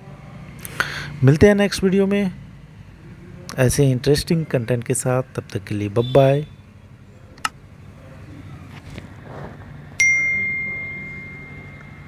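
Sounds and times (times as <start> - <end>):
bright bell ding: 10.0 - 12.0.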